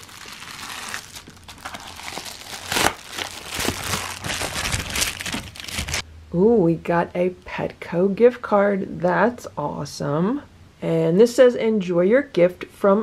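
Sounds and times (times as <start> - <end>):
plastic mailer rustling and crackling: 0.0 - 6.0.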